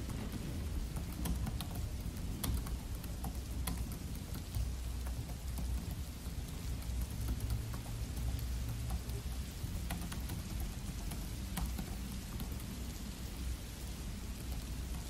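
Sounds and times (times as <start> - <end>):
laptop keyboard typing: 0.0 - 15.0
steady rain: 0.0 - 15.0.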